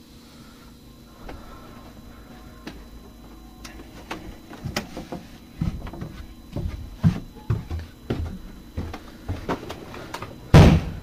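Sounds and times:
footsteps on wooden stairs: 3.8 - 9.9.

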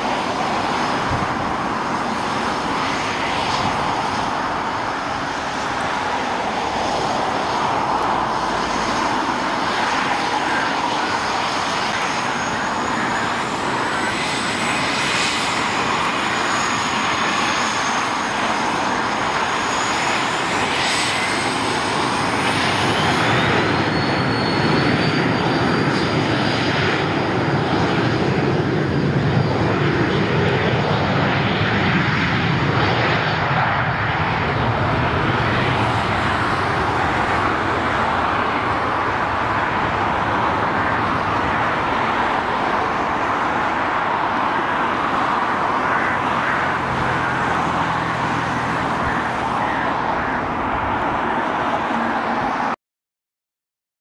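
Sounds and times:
high jet whine: 0.0 - 52.8
jet engine noise: 0.0 - 52.8.

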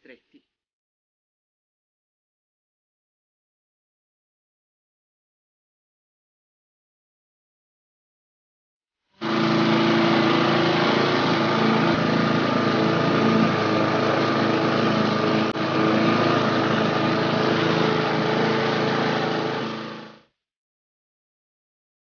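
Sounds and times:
lawn mower engine running: 9.2 - 20.3.

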